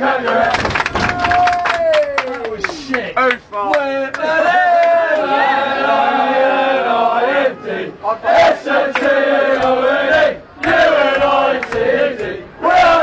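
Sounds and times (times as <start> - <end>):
football supporters chanting: 0.0 - 0.8, 3.7 - 13.0.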